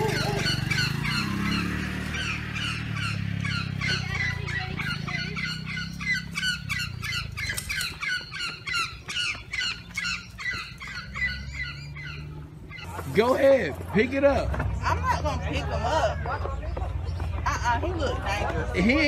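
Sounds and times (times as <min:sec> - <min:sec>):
birds squawking: 0:00.0 - 0:19.0.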